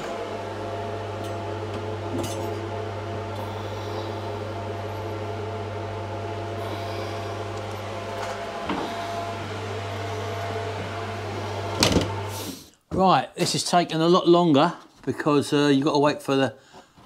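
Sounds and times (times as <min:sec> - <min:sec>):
electrical hum of oven: 0:00.0 - 0:16.9.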